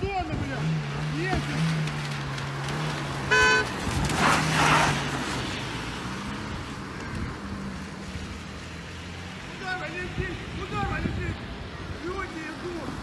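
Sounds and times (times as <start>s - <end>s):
car horn toot: 3.3s - 3.7s.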